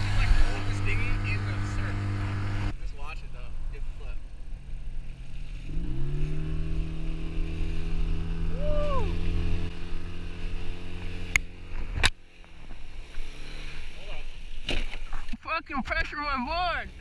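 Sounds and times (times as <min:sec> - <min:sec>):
outboard motor running: 0:00.0 - 0:02.7, 0:04.3 - 0:15.2
rising and falling tone: 0:05.6 - 0:11.5.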